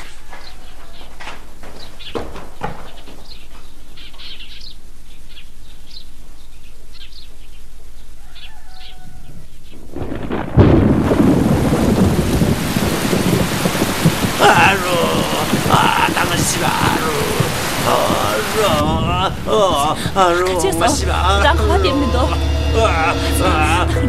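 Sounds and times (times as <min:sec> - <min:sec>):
small birds chirping: 0:00.0 - 0:09.9
loud thunderclap: 0:09.9 - 0:20.9
heavy rain: 0:09.9 - 0:24.0.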